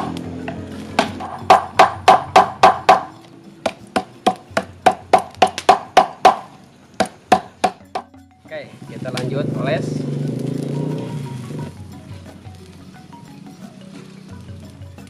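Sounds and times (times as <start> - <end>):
machete knocking on wood: 3.7 - 8.1.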